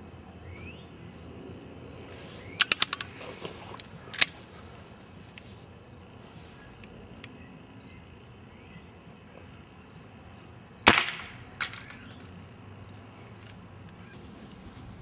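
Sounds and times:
pellet pistol shot: 10.9 - 12.0
light metallic clinks: 11.6 - 13.1.

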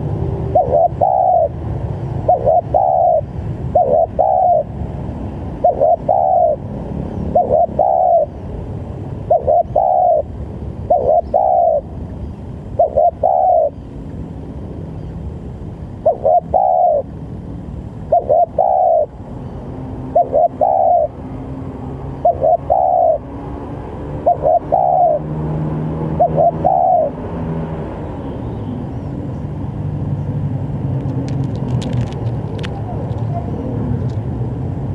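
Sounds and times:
steady low hum: 0.0 - 34.9
dove cooing: 0.4 - 1.6, 2.2 - 4.8, 5.5 - 8.4, 9.2 - 11.9, 12.6 - 13.8, 16.0 - 17.2, 18.0 - 19.2, 20.1 - 21.2, 22.2 - 23.2, 24.2 - 25.3, 26.0 - 27.2.

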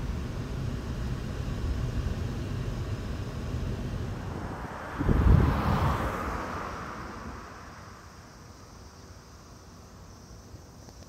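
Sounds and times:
bus engine and road rumble: 0.0 - 11.0
rushing sound: 3.9 - 8.2.

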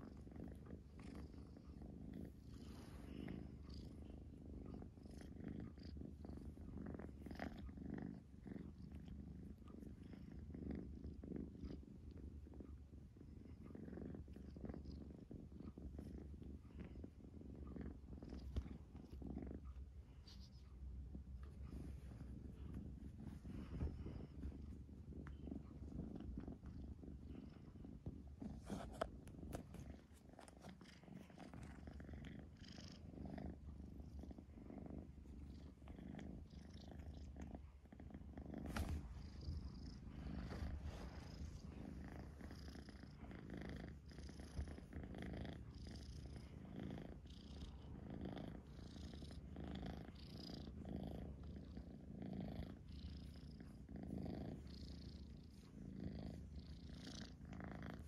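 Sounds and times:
kitten purring: 0.0 - 58.0.

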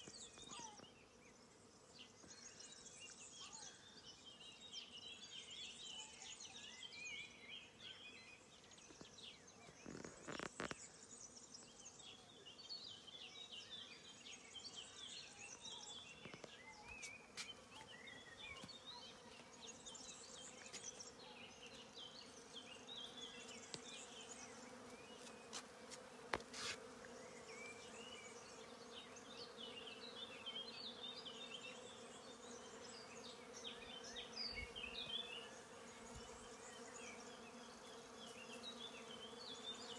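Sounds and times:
flying insect buzzing: 9.8 - 11.0, 18.6 - 39.9.

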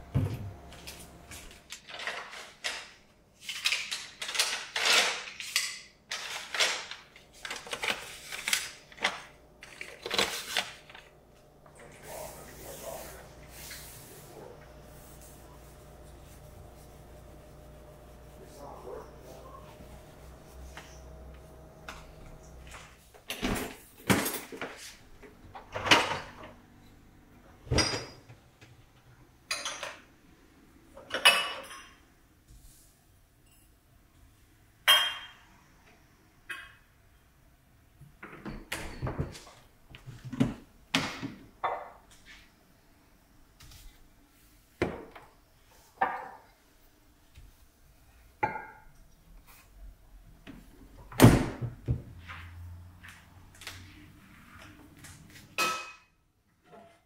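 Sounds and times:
glassware clinking on shelves: 27.7 - 28.3, 29.5 - 30.0, 31.0 - 32.1, 34.8 - 35.5, 55.6 - 57.0.

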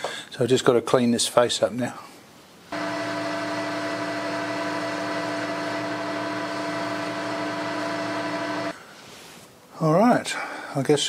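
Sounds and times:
metal lathe humming and whining: 2.8 - 8.7.

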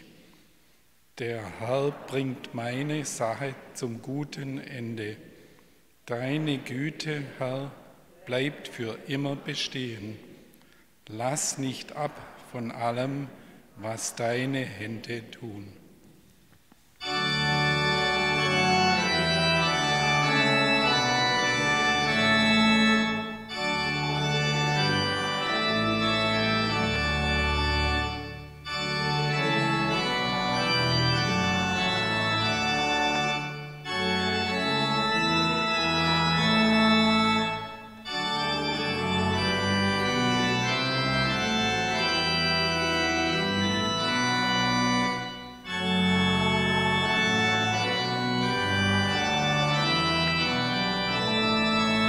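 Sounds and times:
church organ chords: 1.2 - 10.2, 17.0 - 52.0.

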